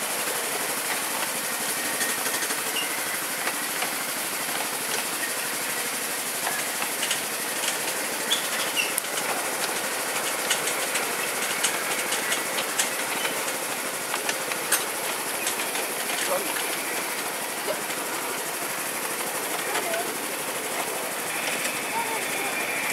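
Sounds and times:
train wheels rattling on track: 0.0s - 22.9s
sharp clicks and clacks: 6.4s - 18.1s, 18.7s - 21.8s.

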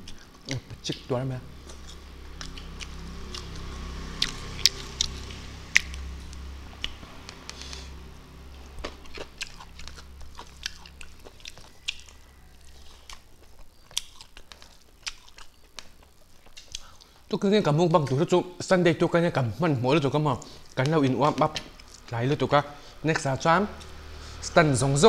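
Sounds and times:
chewing and lip-smacking: 0.0s - 7.8s, 8.5s - 17.3s, 20.4s - 22.1s
steady low hum: 0.0s - 25.0s.

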